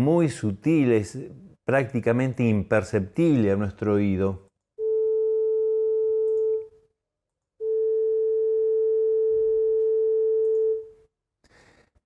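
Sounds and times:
steady sine tone: 7.6 - 10.9.

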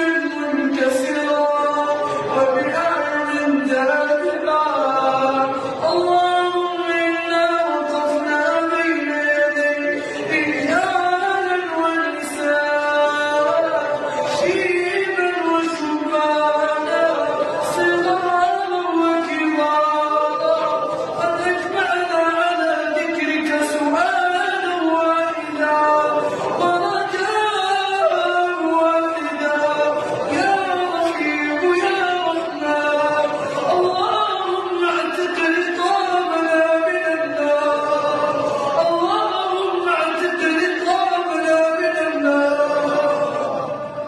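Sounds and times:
boy chanting melodically: 0.0 - 44.0.

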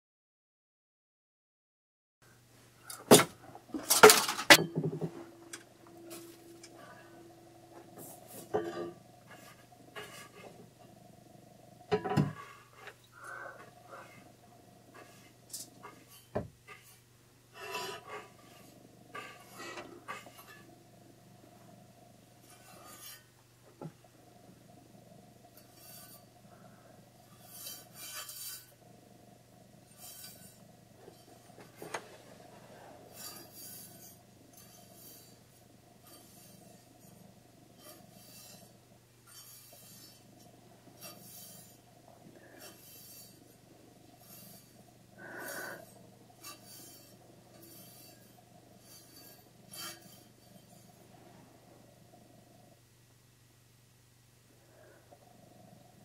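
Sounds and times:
faint steady hum: 2.2 - 56.0
brushing swishes: 42.5 - 51.6.

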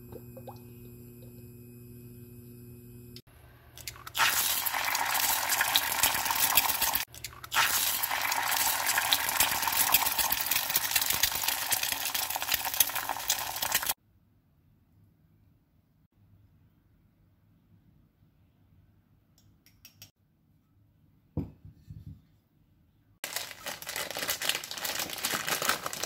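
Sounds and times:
egg frying in hot oil: 3.9 - 14.0.

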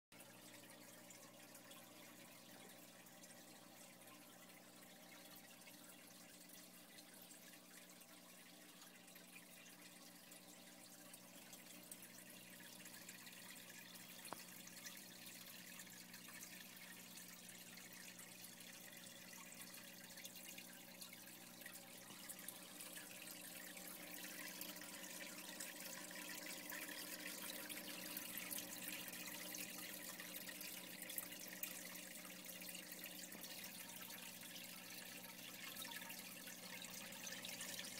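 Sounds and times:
pump hum: 0.2 - 37.9
water trickling and splashing: 0.2 - 37.9.

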